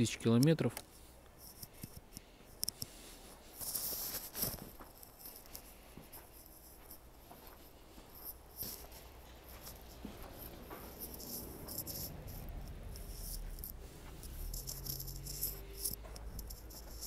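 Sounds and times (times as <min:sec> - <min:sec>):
footsteps crunching on snow: 0:03.0 - 0:17.0.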